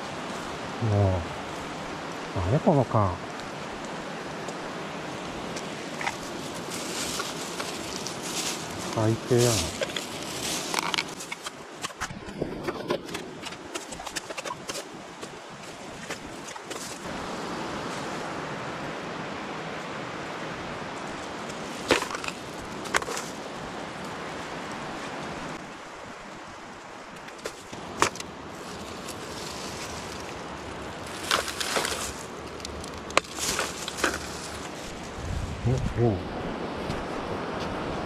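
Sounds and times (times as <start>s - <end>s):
plastic bag rustling: 5.6s - 11.6s, 28.5s - 35.6s.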